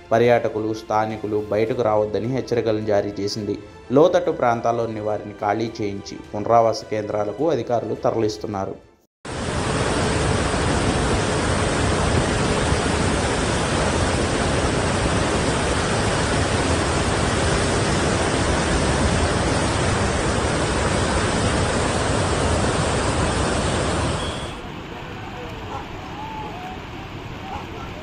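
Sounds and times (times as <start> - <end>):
water rushing through spillway: 9.3 - 28.0.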